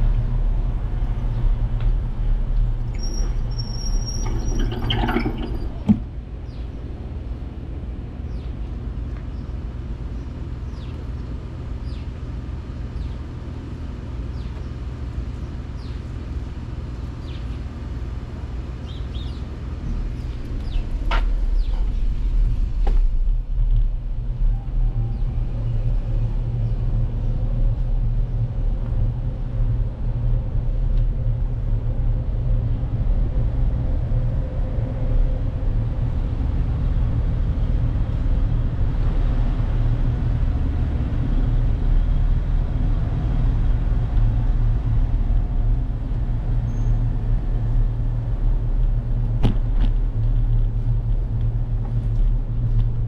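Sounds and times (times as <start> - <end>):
bicycle tyres rolling on asphalt: 18.9 - 53.0.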